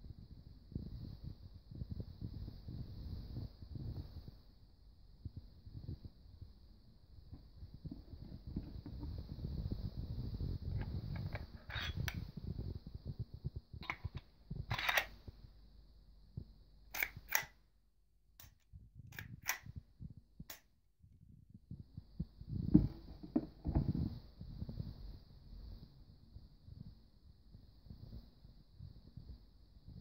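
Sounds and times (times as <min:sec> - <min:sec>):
replica pistol slide clicking: 0:16.9 - 0:17.6.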